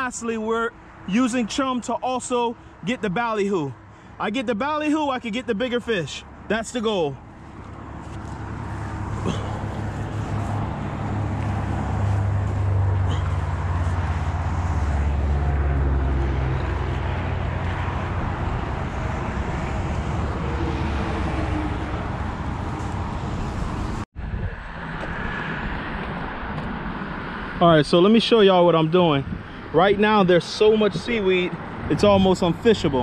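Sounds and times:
road traffic hiss: 2.2 - 4.4, 5.8 - 24.0.

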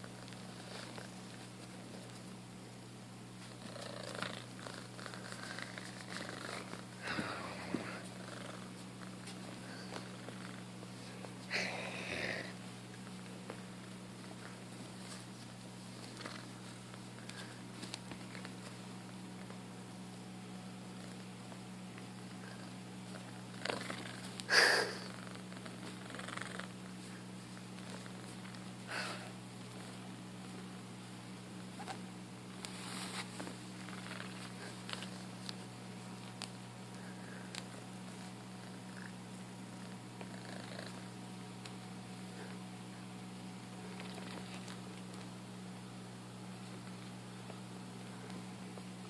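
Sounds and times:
kitten purring: 3.4 - 10.8, 16.1 - 16.6, 22.2 - 28.4, 33.8 - 35.2, 38.0 - 41.2.

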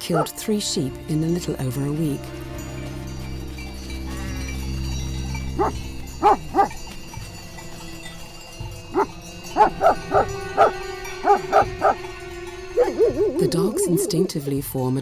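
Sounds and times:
dogs barking: 0.0 - 0.3, 5.3 - 7.0, 8.9 - 12.0, 12.7 - 14.3.

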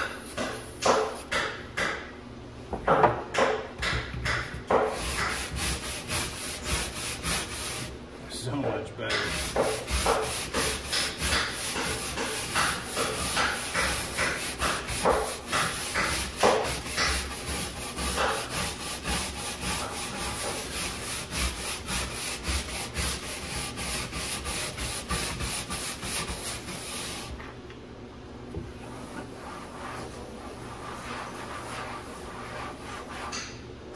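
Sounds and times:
stiff brush scrubbing deck: 9.1 - 27.3.

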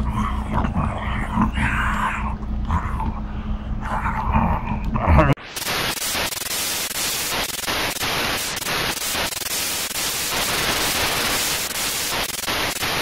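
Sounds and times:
static white noise hiss: 5.4 - 13.0.

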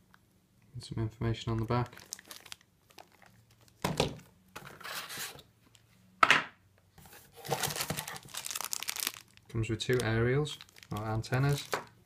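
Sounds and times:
plastic packaging crinkling: 1.4 - 4.2, 7.4 - 12.0.

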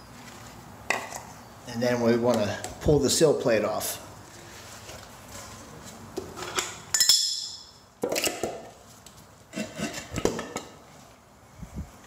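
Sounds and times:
ringing metal clink: 6.9 - 7.7.

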